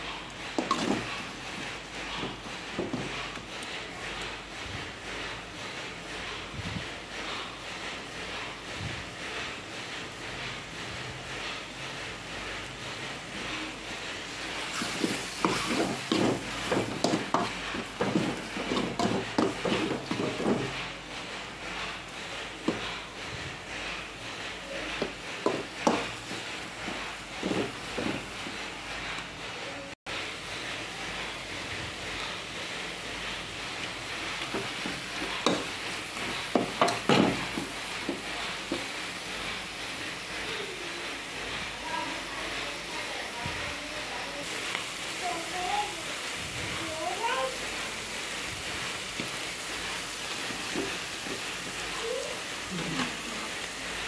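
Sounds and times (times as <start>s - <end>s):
food frying hiss: 0.0s - 54.0s
low sizzle: 0.0s - 54.0s
metal spoon scraping a pan: 0.6s - 1.3s, 14.7s - 20.8s.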